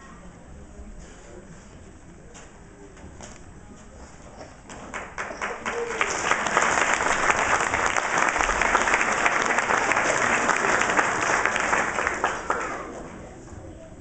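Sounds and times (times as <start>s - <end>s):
audience applauding: 4.7s - 13.2s.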